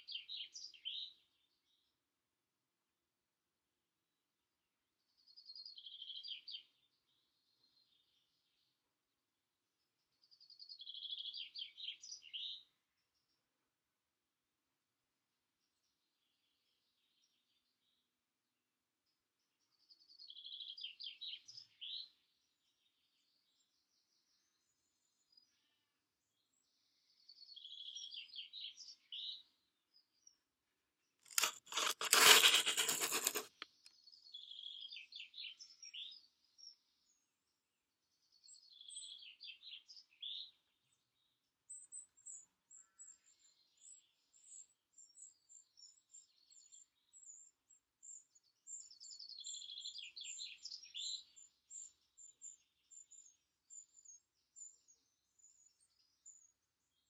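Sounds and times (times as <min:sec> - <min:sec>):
loud rustling crackle: 0:31.3 - 0:33.5.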